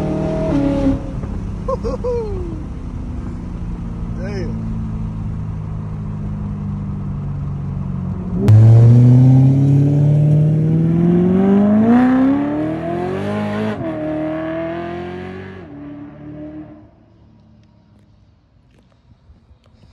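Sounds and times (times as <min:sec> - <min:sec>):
car exhaust revving: 0:08.3 - 0:16.9.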